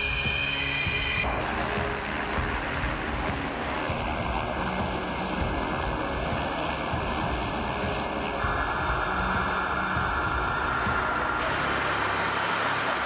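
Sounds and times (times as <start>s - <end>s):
jet aircraft engines running: 0.0s - 13.0s.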